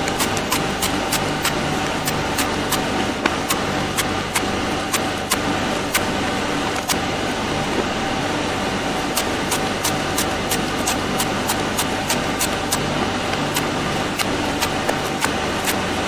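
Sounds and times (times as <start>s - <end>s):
machete chopping coconut: 0.0s - 5.4s, 13.5s - 15.8s
machine hum: 0.0s - 16.0s.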